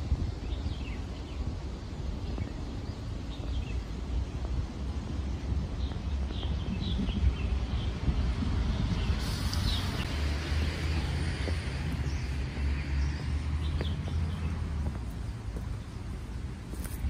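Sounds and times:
steady low rumble: 0.0s - 17.0s
birds chirping: 0.3s - 17.0s
footsteps on stone steps: 3.4s - 7.4s, 10.4s - 17.0s.

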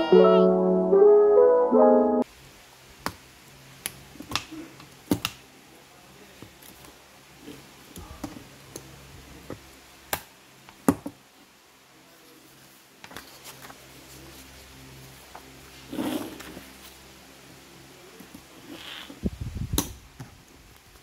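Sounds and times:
paper pages rustling: 13.1s - 14.7s.

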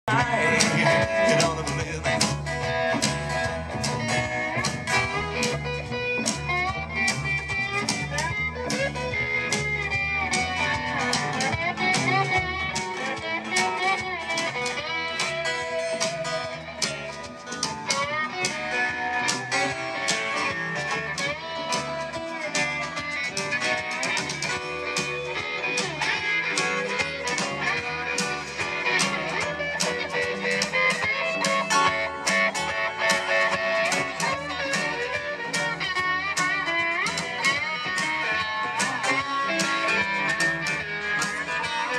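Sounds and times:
guitar: 0.0s - 41.9s
live country band: 0.0s - 41.9s.

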